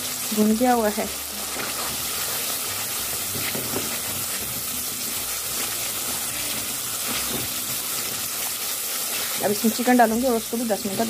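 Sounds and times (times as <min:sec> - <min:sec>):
paste sizzling in oil: 0:00.0 - 0:11.0
spatula stirring in wok: 0:01.4 - 0:11.0.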